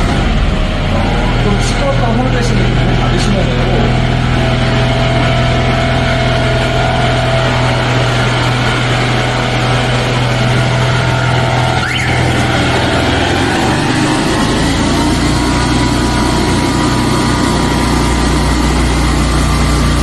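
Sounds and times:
engine running with low hum: 0:00.0 - 0:20.0.

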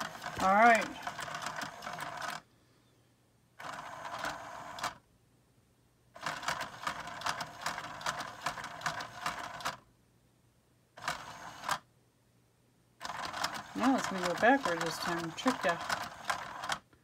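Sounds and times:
toy motor whirring: 0:00.0 - 0:02.4, 0:03.6 - 0:05.0, 0:06.2 - 0:09.8, 0:11.0 - 0:11.8, 0:13.0 - 0:16.8
rapid clicking: 0:13.0 - 0:16.8.

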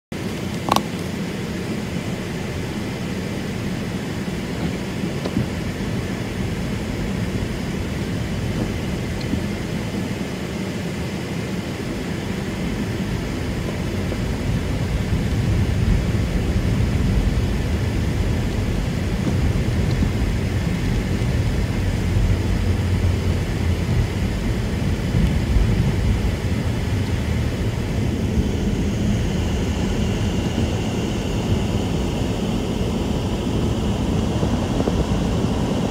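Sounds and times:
car road noise: 0:00.1 - 0:35.9
low rumble: 0:00.7 - 0:10.4, 0:11.9 - 0:35.9
wind noise: 0:11.8 - 0:35.9.

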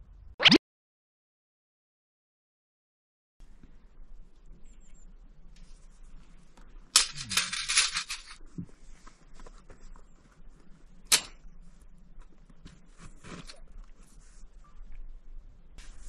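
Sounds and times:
crinkling rustle: 0:04.8 - 0:15.1.

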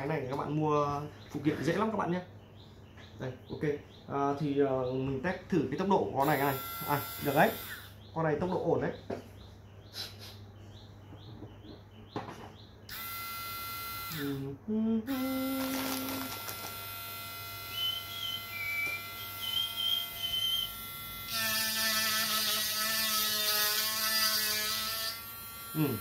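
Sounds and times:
rotary tool motor whine: 0:06.2 - 0:08.0, 0:12.9 - 0:14.4, 0:15.2 - 0:26.0
rotary tool grinding: 0:15.6 - 0:26.0.

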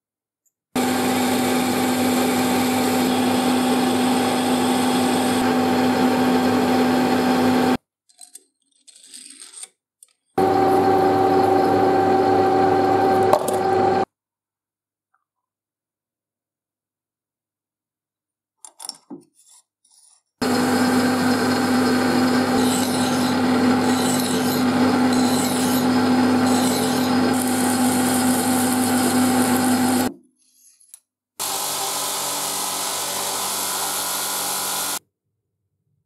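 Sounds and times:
lathe humming: 0:00.8 - 0:07.8, 0:10.4 - 0:14.0, 0:20.4 - 0:30.1, 0:31.4 - 0:35.0
polishing wheel spinning: 0:00.8 - 0:07.8, 0:20.4 - 0:30.1, 0:31.4 - 0:35.0
file rasping on spinning steel: 0:19.4 - 0:30.8.

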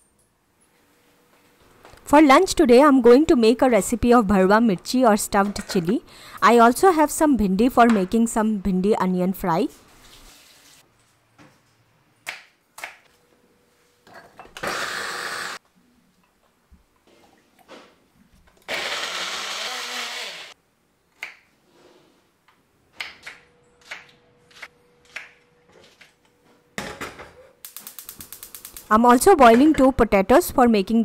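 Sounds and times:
blender whirring: 0:14.6 - 0:15.6, 0:18.7 - 0:20.6.

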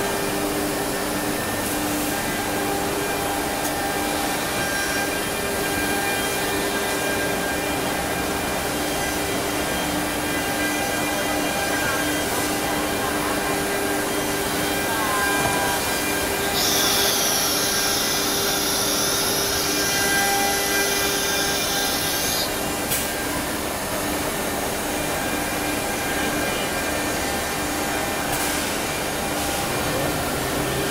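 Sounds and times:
wood router machine noise: 0:02.3 - 0:22.7.

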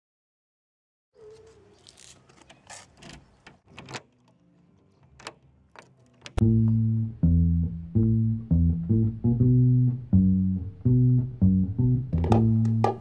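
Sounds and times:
door opening: 0:01.4 - 0:06.4
loud bass and guitar music: 0:06.4 - 0:13.0.

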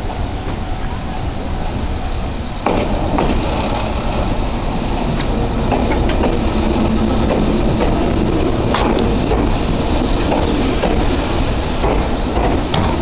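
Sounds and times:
electric train running past: 0:00.0 - 0:13.0
wheels clicking on rails: 0:02.6 - 0:13.0.

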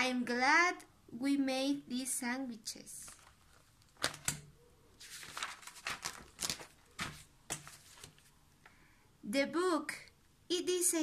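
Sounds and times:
paper page rustling: 0:03.0 - 0:08.4.

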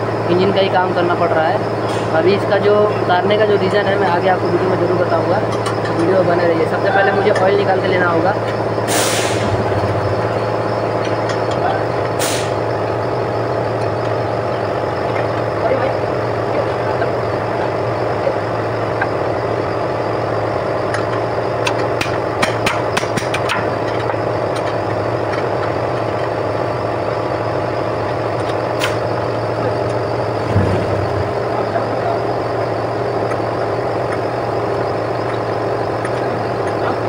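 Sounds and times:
machine drone: 0:00.0 - 0:37.0
dull thump: 0:30.4 - 0:31.4.

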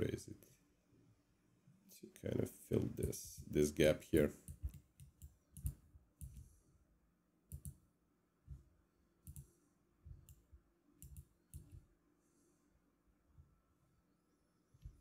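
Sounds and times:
computer mouse clicks: 0:04.4 - 0:06.5, 0:07.5 - 0:07.8, 0:09.2 - 0:09.5, 0:10.2 - 0:11.8.

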